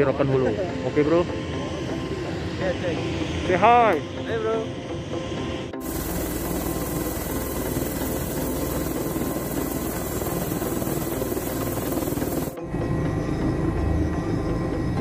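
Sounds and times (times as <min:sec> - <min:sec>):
helicopter turbine whine: 0:00.0 - 0:15.0
loud rushing rotor noise: 0:05.7 - 0:12.6.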